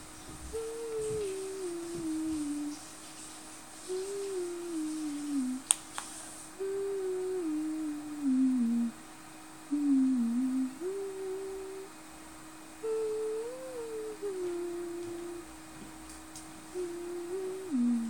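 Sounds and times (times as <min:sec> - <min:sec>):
person humming a slow tune: 0:00.0 - 0:02.8, 0:03.9 - 0:05.7, 0:06.6 - 0:09.0, 0:09.6 - 0:12.0, 0:12.8 - 0:15.6, 0:16.7 - 0:18.0.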